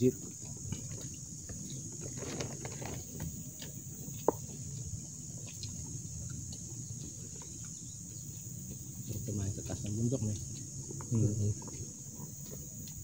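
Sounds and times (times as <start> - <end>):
insects droning: 0.0 - 13.0
plastic container and bag rustling: 2.0 - 3.3.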